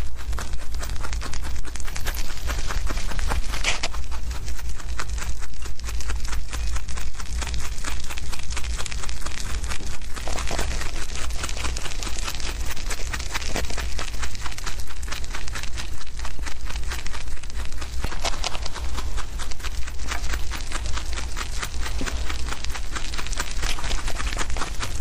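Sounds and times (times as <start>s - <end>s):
rabbits chewing grass: 0.0s - 25.0s
steady low hum: 0.0s - 25.0s
leaves rustling: 5.5s - 25.0s.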